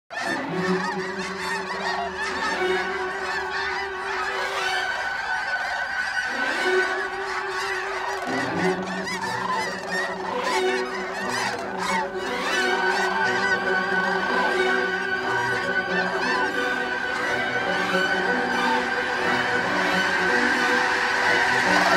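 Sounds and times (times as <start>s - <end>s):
geese honking and yelping: 0.1s - 21.9s.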